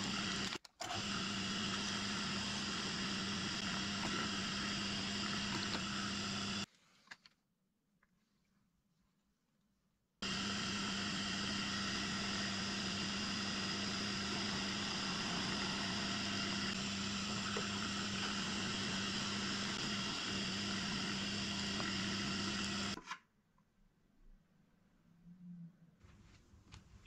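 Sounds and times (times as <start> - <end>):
milling machine motor hum: 0.0 - 6.7, 10.2 - 23.0
spindle and cutter whine: 0.0 - 6.7, 10.2 - 23.0.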